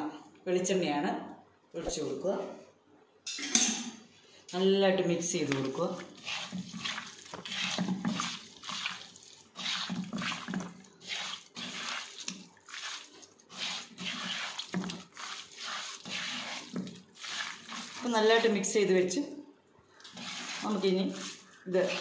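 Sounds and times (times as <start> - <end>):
hand squishing raw meat: 5.6 - 18.1, 19.9 - 22.0.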